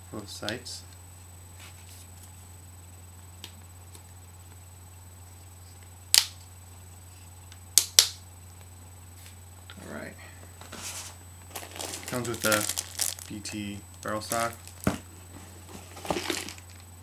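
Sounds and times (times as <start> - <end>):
sights snapping with sharp clicks: 6.1 - 6.4, 7.6 - 8.7.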